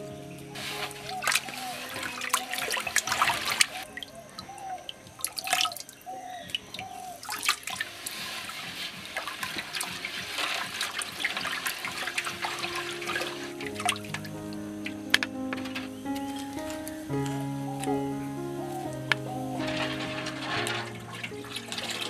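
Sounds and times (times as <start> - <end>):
liquid splashing in a pot: 7.3 - 13.9.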